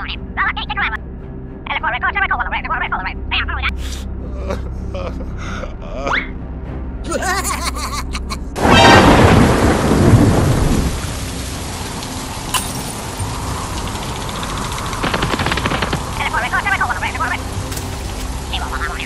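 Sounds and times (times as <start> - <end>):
heavy rain: 7.2 - 19.0
thunder rumbling: 8.6 - 17.6.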